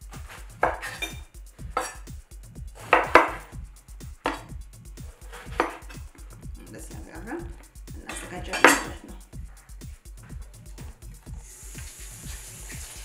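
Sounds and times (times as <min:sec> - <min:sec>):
knife chopping on wooden board: 0:00.1 - 0:02.1, 0:02.8 - 0:03.6, 0:04.2 - 0:04.6, 0:05.2 - 0:06.1.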